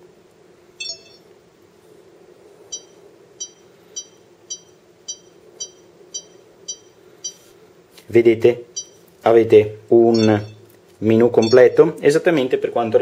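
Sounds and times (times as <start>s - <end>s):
short high touchscreen beeps: 0.8s - 1.3s, 2.7s - 7.4s, 8.8s - 9.0s, 10.2s - 10.7s, 11.4s - 11.8s.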